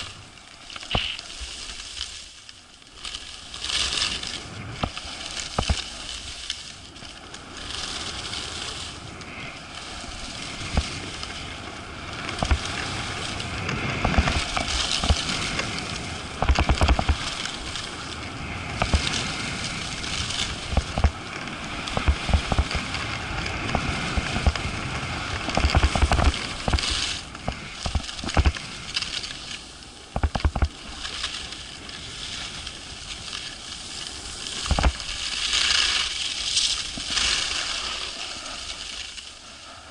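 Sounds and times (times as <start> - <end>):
wind rushing over microphone: 0.0 - 1.9, 3.5 - 39.9
low thuds of wind buffeting: 0.0 - 2.0, 2.6 - 39.9
skis scraping over snow: 0.0 - 39.9.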